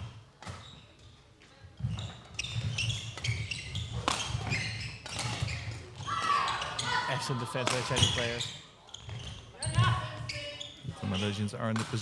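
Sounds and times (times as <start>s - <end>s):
shoes squeaking: 0.0s - 1.2s, 1.8s - 12.0s
racket hitting shuttlecock: 2.6s - 5.6s.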